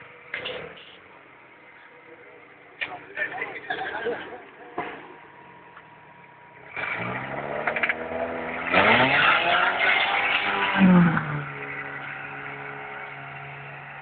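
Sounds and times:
buggy engine revving hard: 6.7s - 14.0s.

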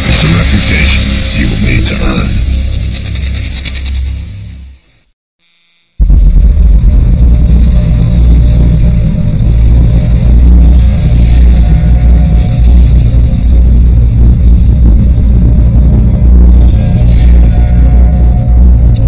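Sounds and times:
theme music with heavy bass: 0.0s - 3.8s, 6.0s - 19.0s.

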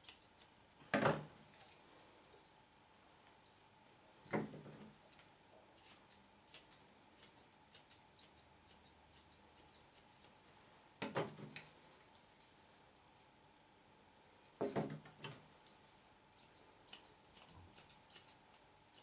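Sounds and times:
scissors snipping hair: 5.8s - 10.3s, 16.4s - 18.4s.

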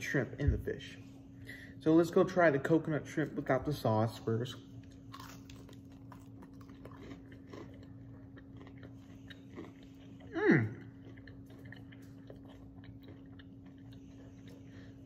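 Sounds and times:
steady low hum: 0.0s - 15.0s
biting and chewing crunchy food: 4.8s - 15.0s.

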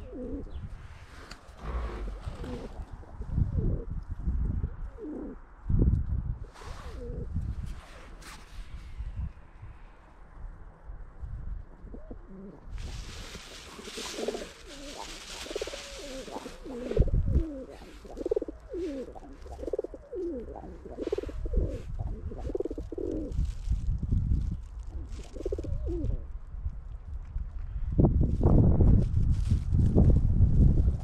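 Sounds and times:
pigeons cooing: 0.0s - 0.6s, 1.5s - 3.9s, 4.8s - 5.4s, 11.8s - 23.4s, 25.0s - 26.2s
rushing hiss: 12.8s - 17.0s.

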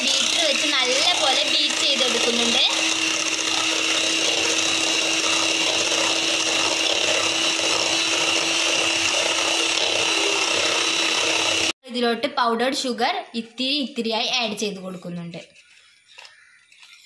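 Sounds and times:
electric hand mixer whining: 0.0s - 11.8s.

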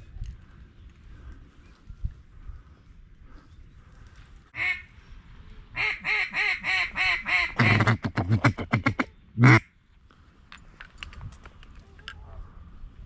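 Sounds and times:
duck call feed chatter: 5.8s - 9.6s
duck call quacks: 5.8s - 9.6s.

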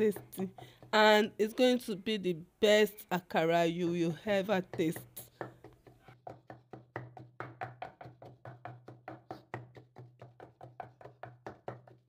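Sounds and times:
wooden pestle pounding in mortar: 0.0s - 1.4s, 4.4s - 12.0s.

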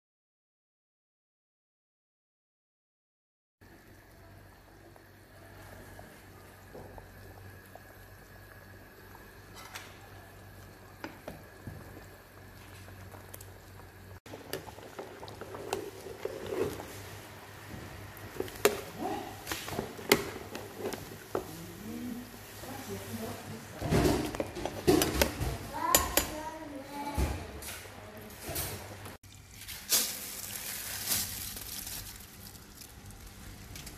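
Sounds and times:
sauce bubbling in a pan: 3.6s - 21.6s.

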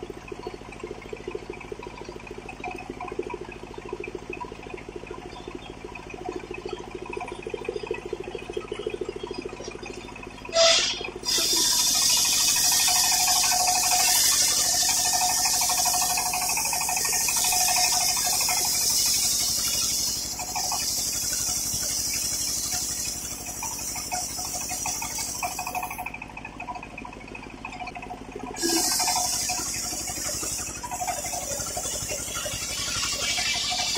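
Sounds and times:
circular saw blade cutting wood: 10.6s - 26.1s, 28.6s - 33.9s.

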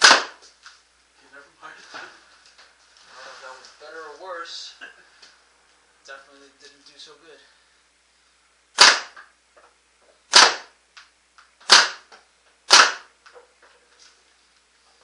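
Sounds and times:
paintball gun shots: 0.0s - 0.4s, 8.8s - 9.3s, 10.3s - 10.8s, 11.6s - 12.1s, 12.7s - 13.1s.

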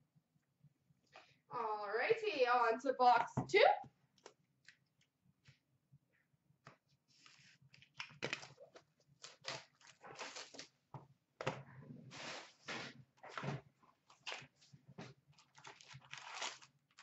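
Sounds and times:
plastic wrap crinkling: 15.3s - 17.0s.

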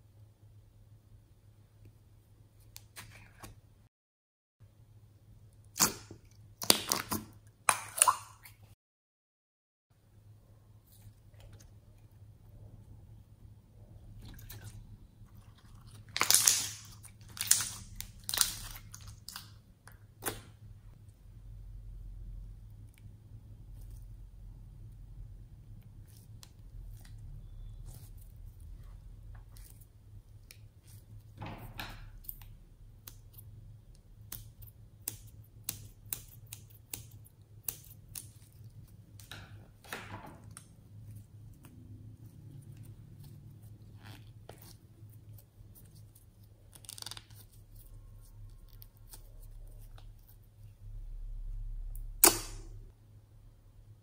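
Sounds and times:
slime squelching by hand: 13.9s - 20.5s.

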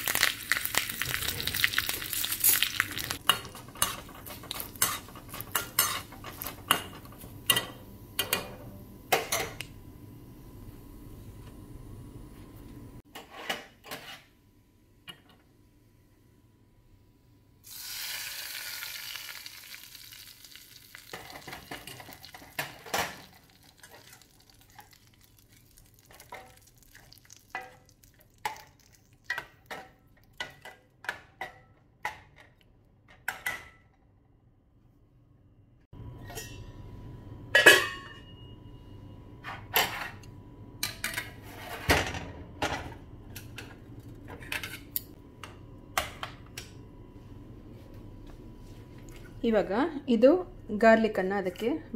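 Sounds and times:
tempering sizzling in pot: 0.0s - 7.6s, 17.6s - 30.8s.

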